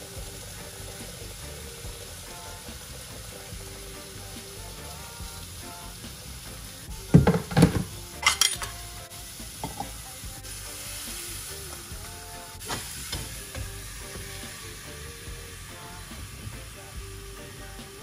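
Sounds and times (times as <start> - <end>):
meat sizzling in a frying pan: 0.0 - 18.0
metallic clinks: 8.2 - 8.8.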